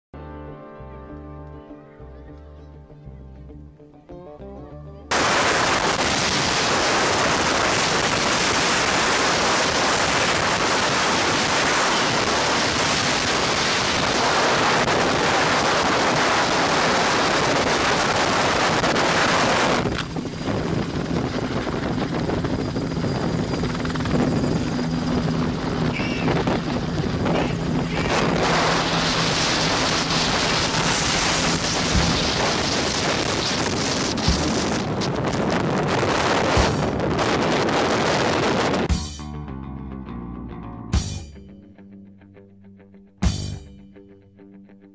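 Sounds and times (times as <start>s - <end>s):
heavy wind on microphone: 5.1s - 38.9s
helicopter rotor and engine: 5.1s - 38.9s
steady low hum: 18.6s - 35.2s.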